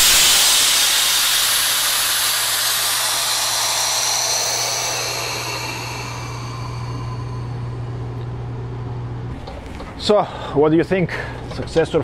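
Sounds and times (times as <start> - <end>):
compressed air hissing from valve: 0.0 - 8.1.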